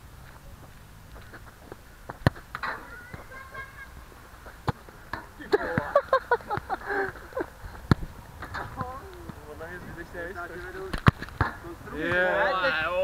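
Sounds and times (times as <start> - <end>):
players shouting: 11.8 - 13.0.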